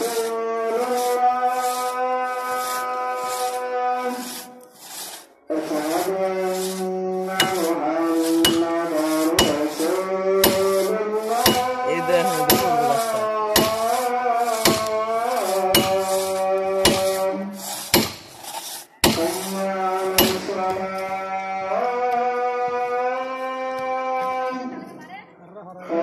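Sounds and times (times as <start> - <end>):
axes chopping into tree trunk: 8.4 - 9.8, 10.4 - 10.8, 11.4 - 11.7, 13.5 - 13.9, 14.6 - 15.0, 15.7 - 16.2, 16.8 - 17.3, 17.9 - 18.3, 19.0 - 19.3, 20.2 - 20.6.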